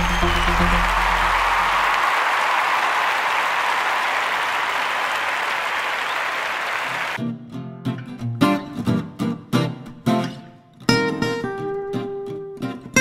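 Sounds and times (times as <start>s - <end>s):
applause: 0.0s - 7.2s.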